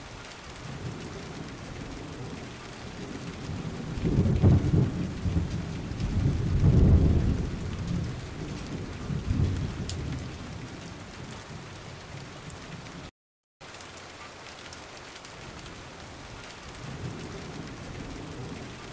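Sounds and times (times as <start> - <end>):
rain: 0.0 - 18.9
rolling thunder: 0.6 - 12.7, 16.8 - 18.9.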